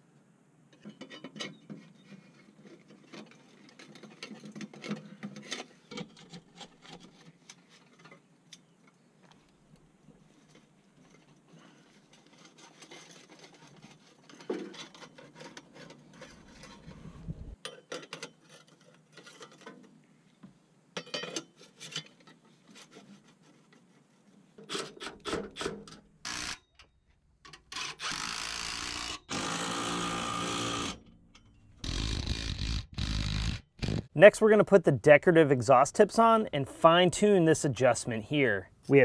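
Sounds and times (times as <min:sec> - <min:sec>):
exhaust pipes scraping and clicking: 0:10.1 - 0:19.9
cordless power tool motor whine: 0:28.0 - 0:31.0.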